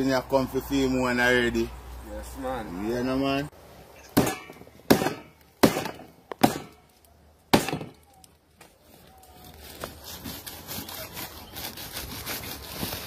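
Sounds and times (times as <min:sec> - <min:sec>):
machete chopping on wooden block: 0:04.2 - 0:06.8, 0:07.5 - 0:08.0.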